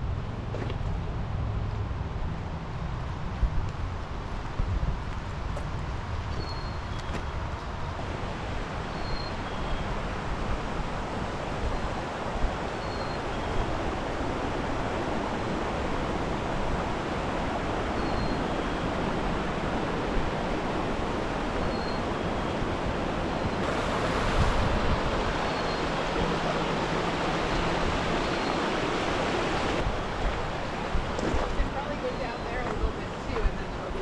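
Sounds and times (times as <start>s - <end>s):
fast-flowing creek water: 8.0s - 34.0s.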